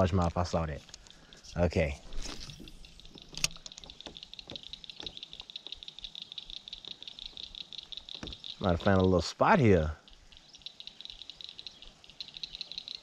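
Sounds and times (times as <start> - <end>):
fishing reel ticking: 2.2 - 9.1.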